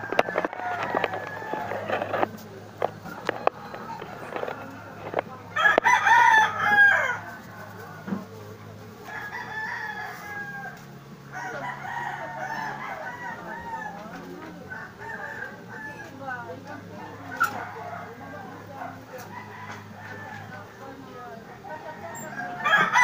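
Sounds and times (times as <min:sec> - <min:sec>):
rooster crowing: 0:00.0 - 0:02.2, 0:05.6 - 0:07.2, 0:09.1 - 0:16.1, 0:21.8 - 0:23.0.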